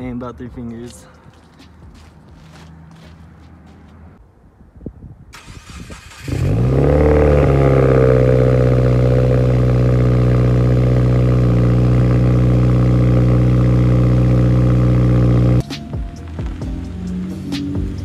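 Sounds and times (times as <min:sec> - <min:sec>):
car engine starting and idling: 0:05.4 - 0:18.0.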